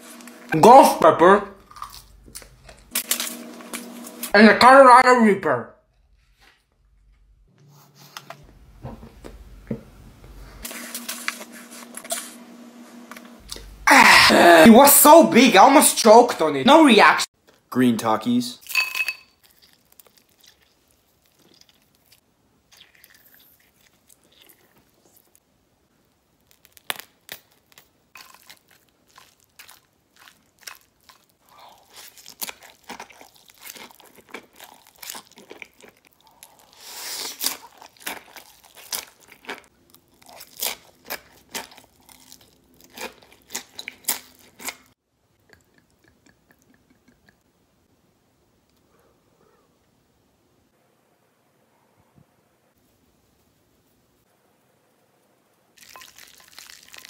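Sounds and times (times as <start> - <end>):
noodle slurping: 19.5 - 25.4, 28.2 - 39.7
chips being crunched: 26.4 - 31.0, 55.8 - 57.0.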